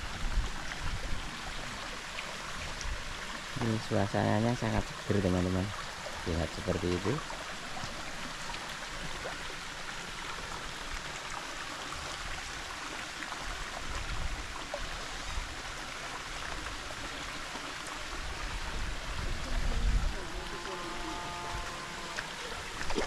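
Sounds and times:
stream trickling over rocks: 0.0s - 23.0s.

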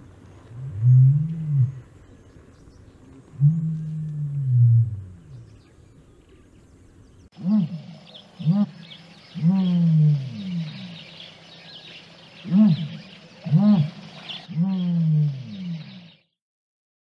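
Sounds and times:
ostrich low hooting calls: 7.3s - 16.2s.

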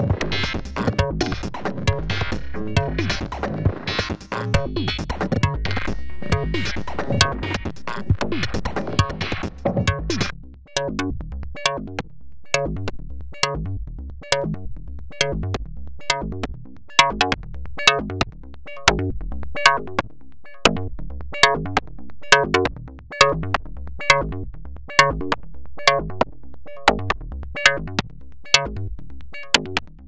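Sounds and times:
sustained low bass: 0.0s - 20.0s
sequenced synthesizer pattern: 0.0s - 29.8s.

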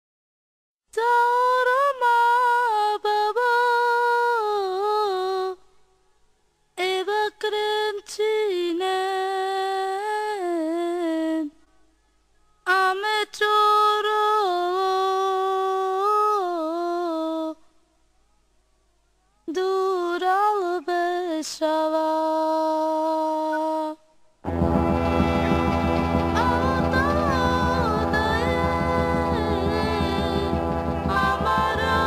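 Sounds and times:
high voice singing unaccompanied: 19.5s - 24.0s, 26.3s - 32.0s.

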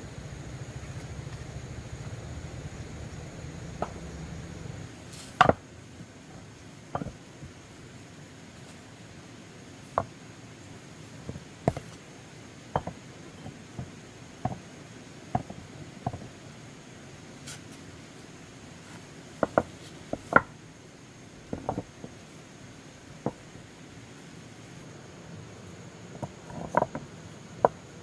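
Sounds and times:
hard objects knocking: 6.9s - 7.2s, 12.7s - 14.7s, 15.3s - 16.3s, 19.4s - 20.5s, 21.5s - 22.2s.

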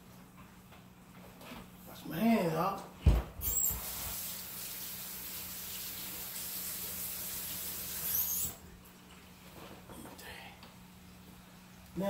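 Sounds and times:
faucet squeak: 3.4s - 4.0s, 7.8s - 8.6s
kitchen faucet running: 3.4s - 8.7s.

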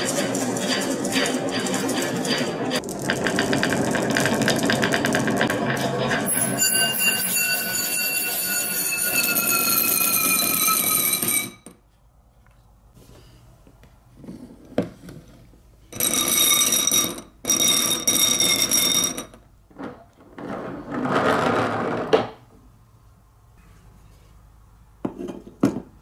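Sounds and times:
marble rolling on wooden track: 0.0s - 11.5s, 16.0s - 22.4s
marbles swirling in glass bowl: 2.8s - 5.6s.

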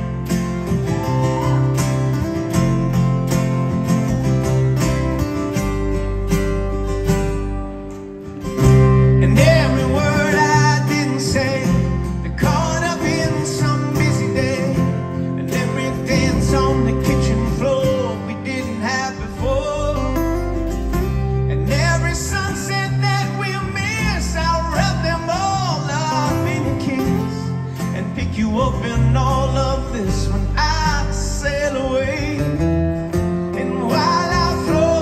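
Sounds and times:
bass guitar: 0.0s - 35.0s
strummed acoustic guitars: 0.0s - 35.0s
man singing: 9.0s - 20.6s, 21.4s - 35.0s.

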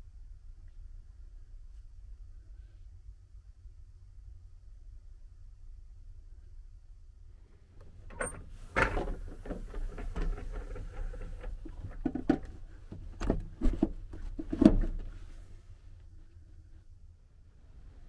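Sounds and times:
roll-down blind rattling: 8.1s - 15.2s.

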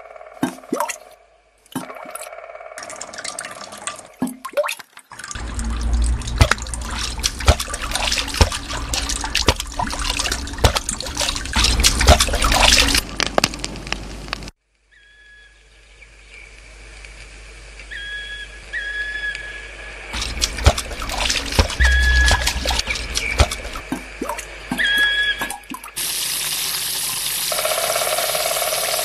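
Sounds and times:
water drips and plops: 0.4s - 13.9s, 20.2s - 27.3s
mud and water splashing: 0.4s - 14.5s, 20.1s - 27.7s
steady droning tone: 5.4s - 13.0s, 19.8s - 25.4s.

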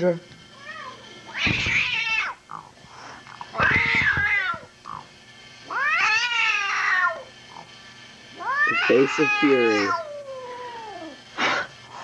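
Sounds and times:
cat meowing loudly: 0.6s - 2.4s, 3.5s - 4.7s, 5.7s - 7.2s, 8.4s - 11.2s.

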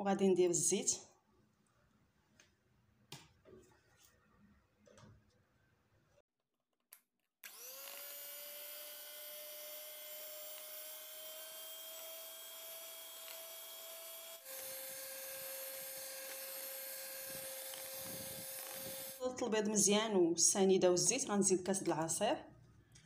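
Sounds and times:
electric hand mixer whine: 7.4s - 19.2s.

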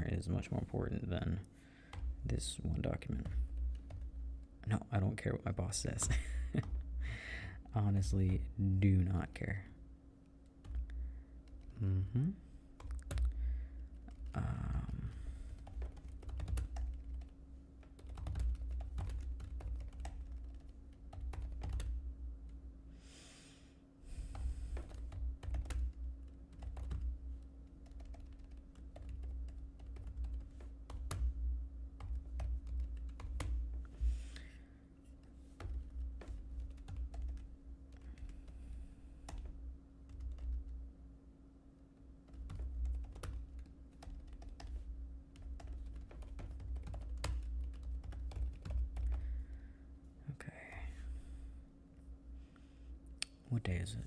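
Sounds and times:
faint steady hum: 0.0s - 54.0s
keyboard typing clicks: 12.8s - 13.3s, 14.0s - 22.6s, 24.3s - 27.1s, 27.8s - 31.4s, 42.2s - 49.2s.

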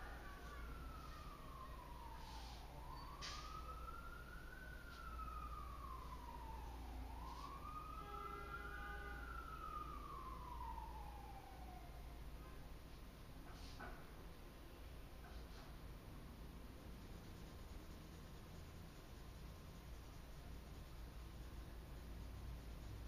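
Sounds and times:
faint siren wailing: 0.0s - 14.1s.

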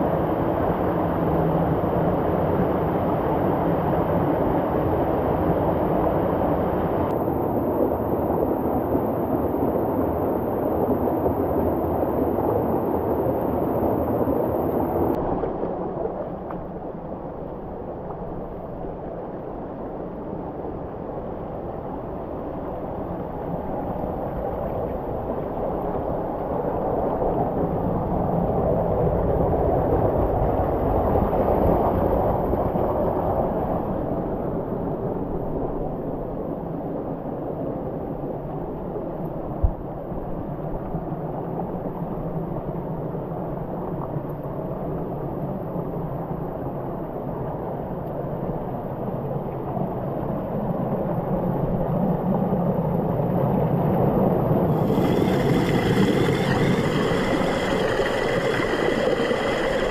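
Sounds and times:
rushing river water: 53.1s - 59.9s.

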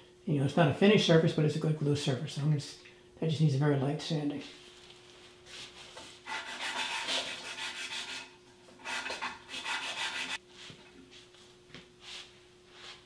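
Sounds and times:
wood block sanding strokes: 5.5s - 10.4s.

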